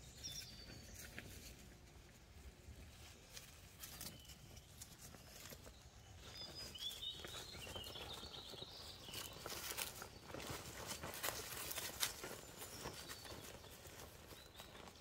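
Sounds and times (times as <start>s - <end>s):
paws rustling in dry leaves: 2.8s - 15.0s.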